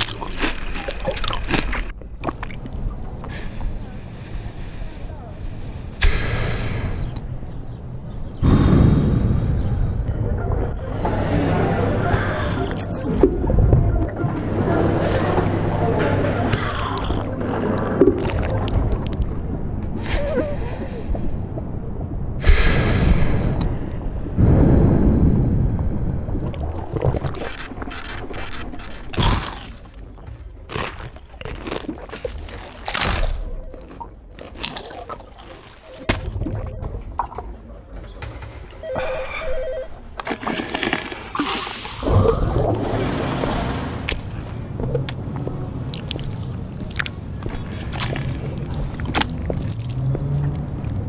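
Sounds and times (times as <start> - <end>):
wet mouth sounds: 0.0 - 3.3, 12.2 - 13.3, 16.5 - 19.4, 26.4 - 36.7, 44.1 - 51.0
rush of noise: 8.4 - 12.7, 18.8 - 28.9
gulp: 16.5 - 19.3, 44.1 - 51.0
low steady rumble: 17.3 - 29.1
muffled phone trill: 38.8 - 40.1
wet mouth clicks: 44.1 - 51.0.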